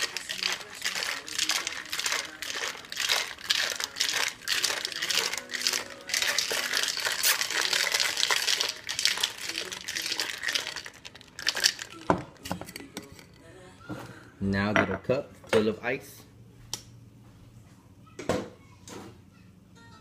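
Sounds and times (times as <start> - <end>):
ice rattling in cocktail shaker: 0.0 - 13.3.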